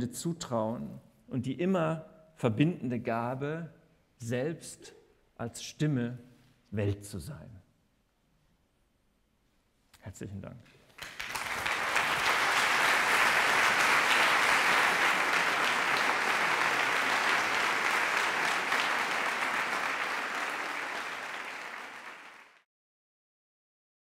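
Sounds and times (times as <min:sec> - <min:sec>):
audience applauding: 0:11.0 - 0:22.6.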